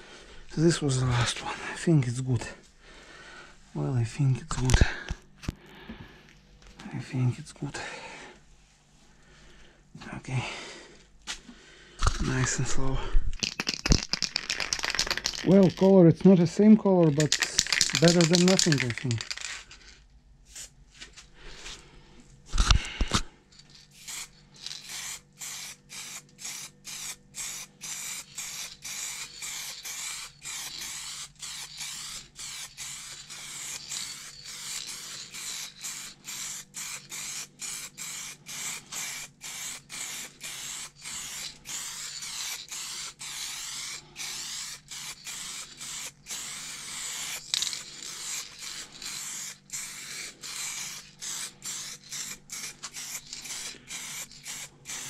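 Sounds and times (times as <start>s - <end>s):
spray paint can hissing: 13.4s - 16.0s, 17.0s - 19.6s, 20.5s - 20.7s, 23.7s - 55.0s.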